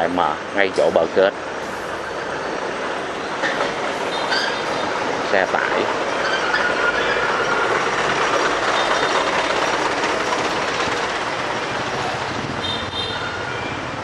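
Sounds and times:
dump truck engine running: 0:06.0 - 0:13.1.

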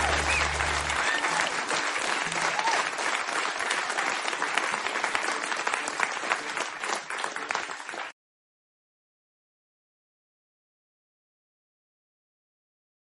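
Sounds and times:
held music notes: 0:00.0 - 0:01.4
audience applauding: 0:00.0 - 0:08.2.

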